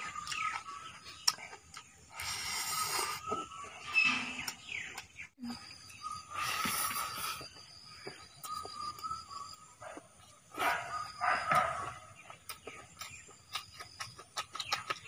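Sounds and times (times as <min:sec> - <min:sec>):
lip smacks and chewing: 0:00.0 - 0:03.8, 0:06.8 - 0:15.0.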